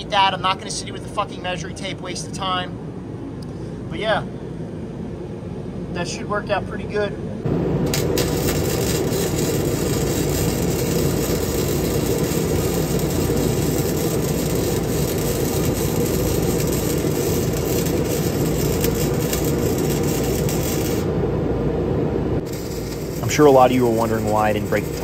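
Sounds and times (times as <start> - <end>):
welding arc crackling: 7.6 - 21.3, 22.4 - 25.0.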